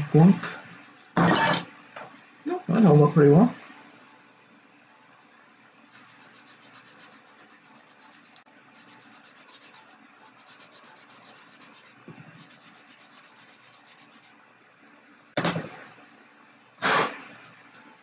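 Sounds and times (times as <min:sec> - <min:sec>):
sanding stick scratching plastic: 0:05.9 - 0:14.4
loud burst of noise: 0:16.8 - 0:17.3.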